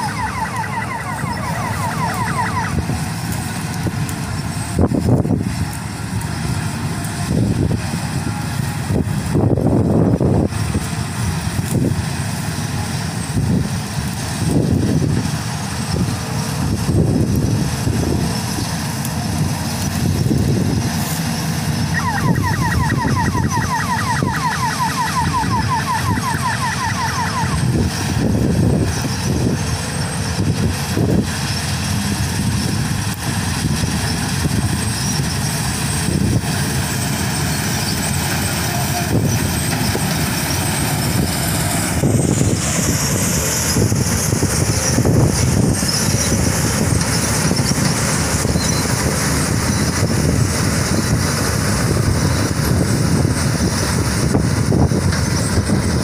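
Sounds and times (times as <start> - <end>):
combine harvester engine running: 0.0 - 56.0
rapid high chirps: 21.9 - 27.7.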